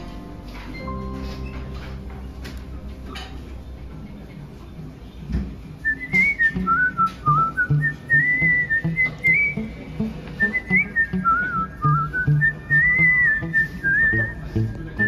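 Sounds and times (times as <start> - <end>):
whistled melody: 5.8 - 15.0
low-pitched accompaniment: 5.9 - 15.0.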